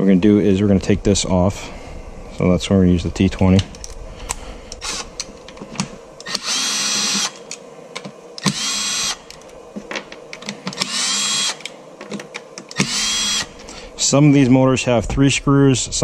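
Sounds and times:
cordless drill motor whine: 4.3s - 7.6s, 8.4s - 9.9s, 10.6s - 11.8s, 12.7s - 14.1s.

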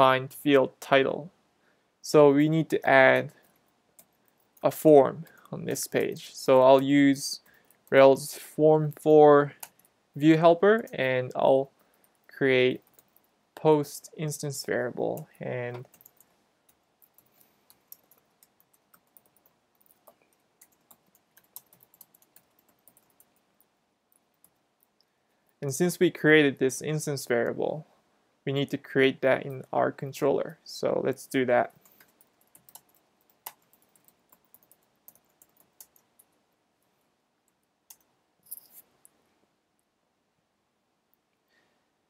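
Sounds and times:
keyboard typing clicks: 15.1s - 23.4s, 31.8s - 36.4s.

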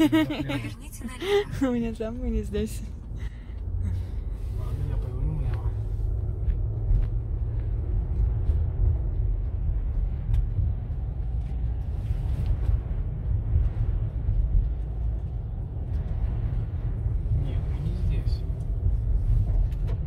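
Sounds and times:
car interior engine and road noise: 0.0s - 20.0s.

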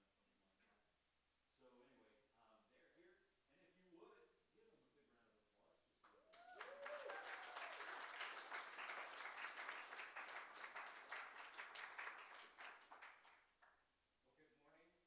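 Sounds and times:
crowd clapping: 6.0s - 13.8s.

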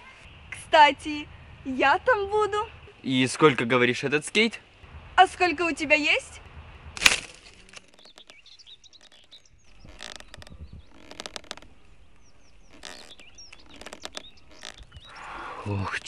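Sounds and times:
small birds chirping: 7.3s - 16.0s.

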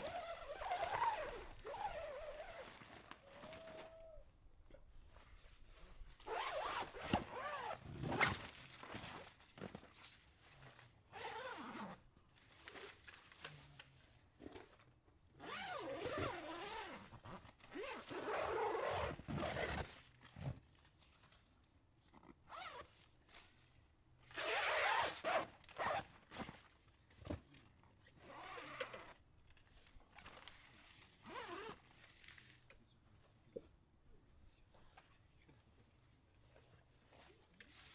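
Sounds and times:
tent zipper pulled: 0.0s - 4.0s, 6.2s - 9.2s, 10.6s - 13.4s, 15.4s - 20.6s, 22.2s - 23.1s, 24.2s - 26.6s, 28.1s - 29.2s, 30.2s - 32.6s.

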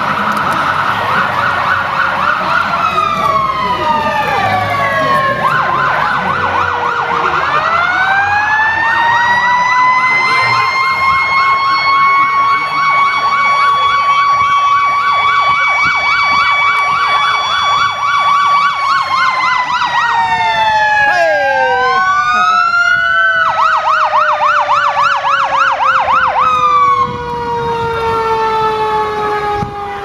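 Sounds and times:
siren wailing: 0.0s - 30.0s
siren yelping: 0.0s - 30.0s.

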